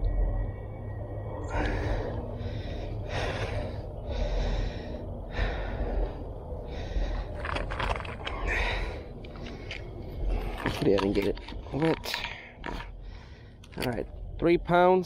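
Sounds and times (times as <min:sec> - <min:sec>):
steady low rumble: 0:00.0 - 0:15.0
person breathing hard: 0:01.4 - 0:10.7, 0:12.2 - 0:13.8.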